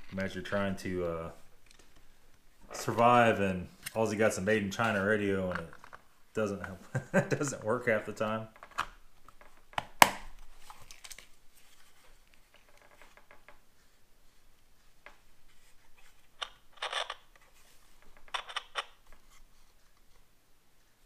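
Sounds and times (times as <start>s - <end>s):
plastic radio clicks and rattles: 4.8s - 6.0s, 8.5s - 11.3s, 12.5s - 13.6s, 16.4s - 19.2s.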